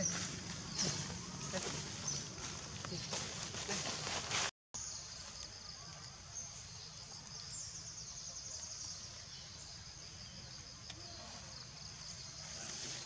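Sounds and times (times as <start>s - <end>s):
insects chorus: 0.0s - 13.0s.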